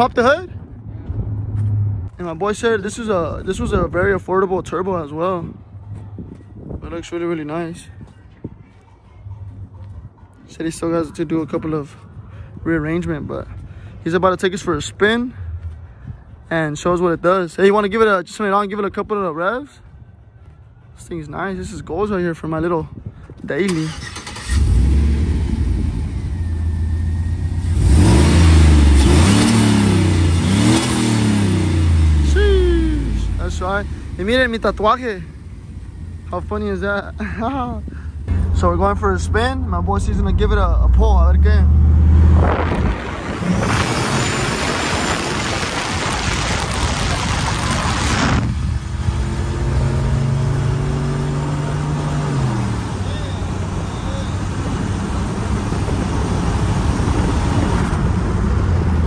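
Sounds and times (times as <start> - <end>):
pickup engine starting and revving: 23.7 - 59.0.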